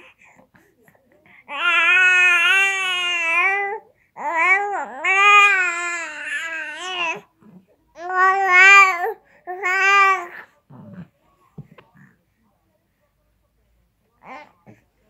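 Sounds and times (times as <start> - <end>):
baby cooing: 1.5 - 7.3, 8.0 - 11.0.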